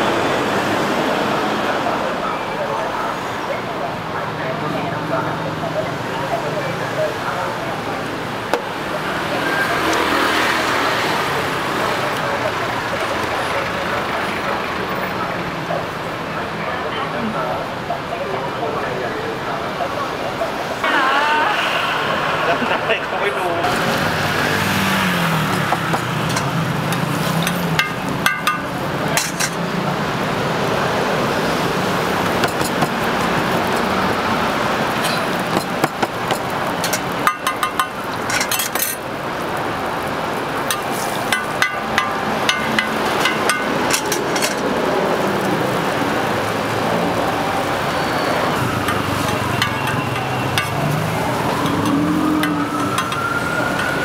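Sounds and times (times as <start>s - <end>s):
street traffic: 0.0s - 54.0s
metal spatula tapping griddle: 25.7s - 29.6s, 35.5s - 38.7s, 40.7s - 44.2s.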